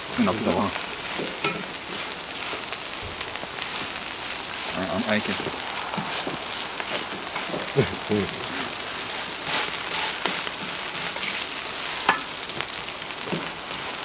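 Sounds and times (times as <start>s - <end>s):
pancakes sizzling in hot oil: 0.0s - 14.0s
spatula tapping griddle: 1.2s - 1.7s, 12.0s - 12.3s
spatula scraping griddle: 6.9s - 12.3s.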